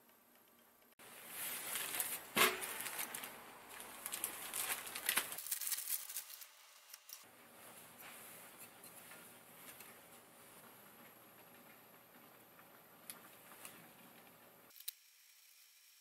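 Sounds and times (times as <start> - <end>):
plastic bag crinkling: 1.2 - 7.2.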